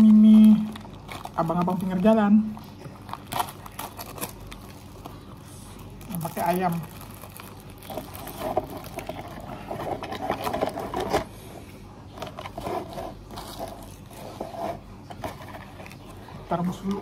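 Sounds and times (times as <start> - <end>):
scraping sounds: 12.2 - 16.4.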